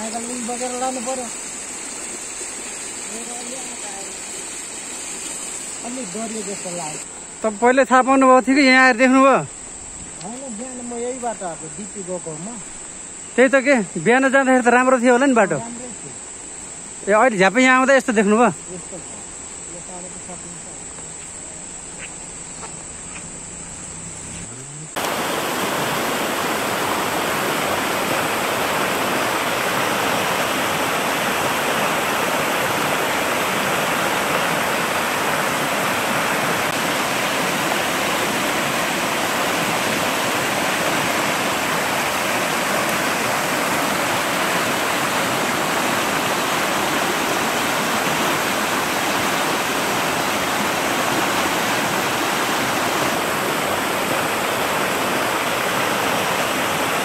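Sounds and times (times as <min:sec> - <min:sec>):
floodwater rushing: 0:00.0 - 0:07.1, 0:24.9 - 0:57.0.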